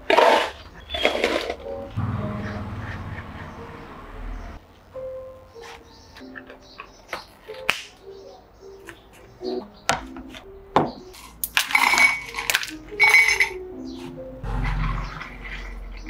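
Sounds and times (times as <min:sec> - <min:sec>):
ice cubes clattering into glass: 0:11.2 - 0:13.6.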